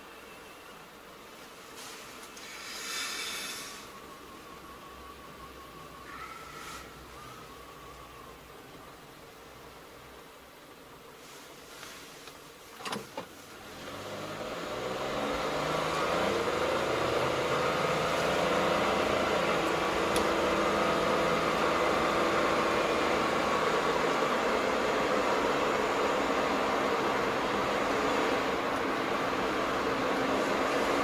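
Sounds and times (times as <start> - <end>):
road noise: 0.0 - 31.0
car engine accelerating: 13.6 - 31.0.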